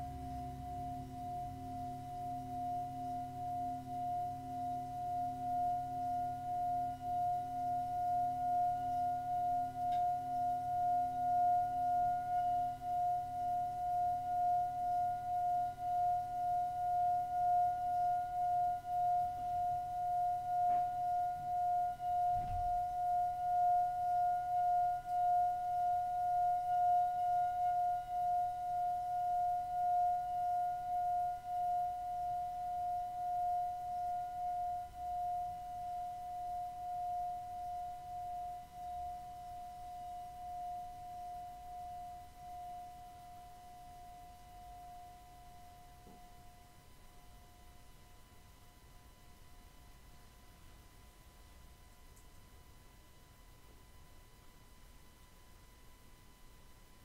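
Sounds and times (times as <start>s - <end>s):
singing bowl ringing: 0.0s - 49.8s.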